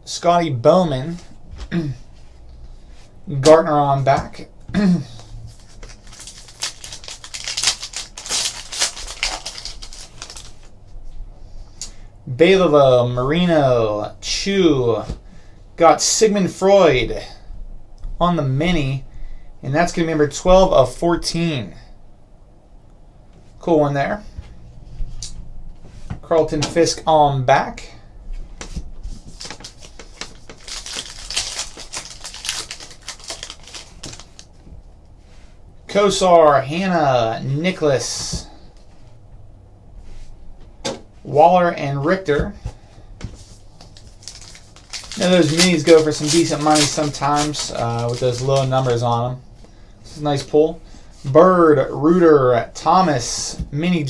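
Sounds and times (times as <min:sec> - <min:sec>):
foil wrapper tearing and crinkling: 0:05.5 - 0:10.7, 0:29.4 - 0:34.5, 0:43.8 - 0:49.1.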